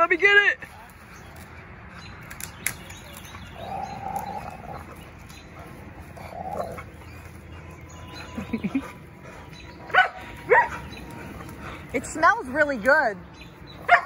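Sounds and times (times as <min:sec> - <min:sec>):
twigs snapping: 0:02.2 - 0:06.7
dogs growling: 0:03.2 - 0:12.6.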